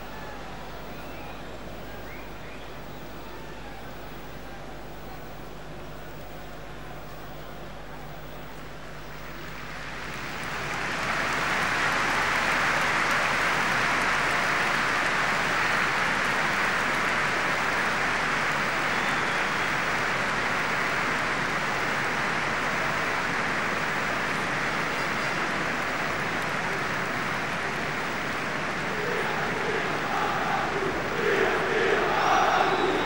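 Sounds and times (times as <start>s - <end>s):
stadium crowd applauding: 8.2s - 33.0s.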